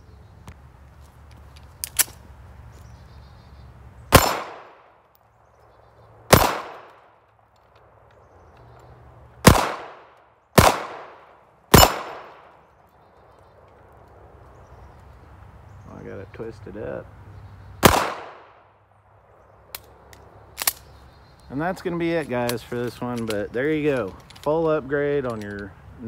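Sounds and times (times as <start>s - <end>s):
pistol shots with echo: 4.1s - 4.9s, 6.3s - 7.0s, 9.4s - 12.6s, 17.8s - 18.7s.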